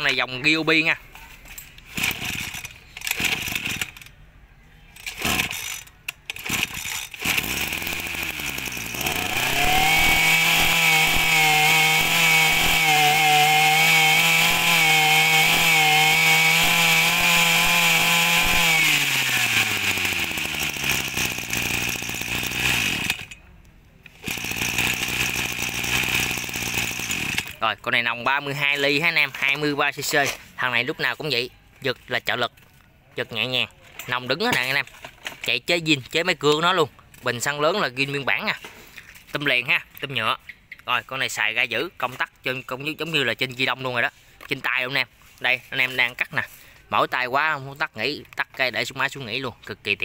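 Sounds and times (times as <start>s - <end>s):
brush cutter engine revving: 1.8s - 4.1s, 5.0s - 23.4s, 24.1s - 30.5s.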